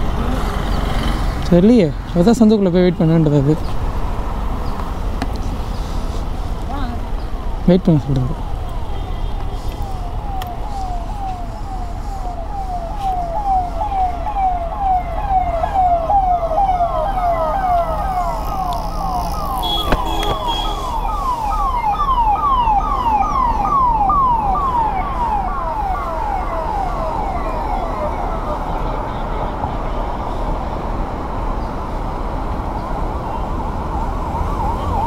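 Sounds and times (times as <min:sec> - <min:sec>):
siren falling sweeps: 0:09.6 - 0:28.9, 0:32.9 - 0:35.0.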